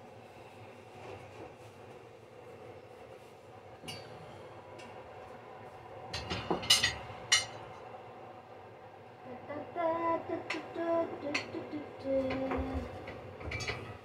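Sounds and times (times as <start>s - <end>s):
dishes and utensils clinking: 6.2s - 7.6s, 12.3s - 14.0s.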